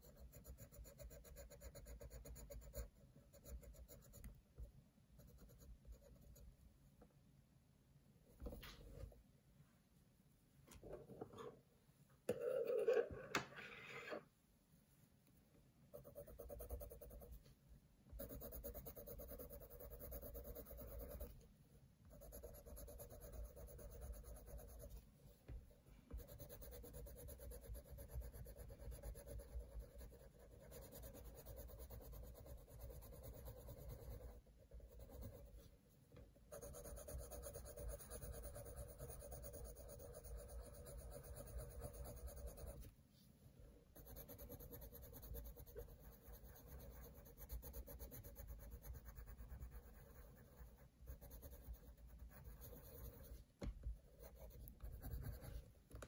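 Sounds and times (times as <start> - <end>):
pencil shading on paper: 0.0 - 6.5, 12.3 - 14.2, 15.9 - 17.4, 18.2 - 21.4, 22.1 - 25.0, 26.1 - 35.8, 36.5 - 42.9, 43.9 - 55.7.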